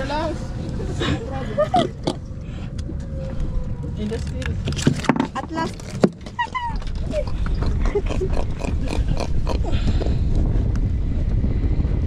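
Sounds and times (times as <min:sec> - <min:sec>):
steady low rumble: 0:00.0 - 0:12.0
knocking and clattering on a boat: 0:04.7 - 0:08.0.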